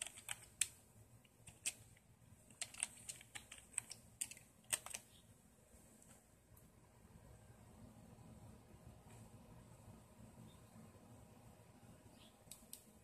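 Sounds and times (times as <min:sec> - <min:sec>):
keyboard keys clicking: 0:00.0 - 0:01.9, 0:02.5 - 0:05.1.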